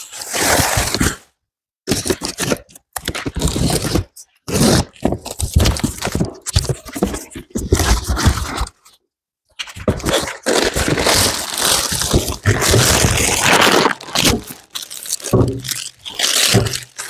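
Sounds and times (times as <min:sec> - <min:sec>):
cardboard packing rustling: 0:09.8 - 0:17.0.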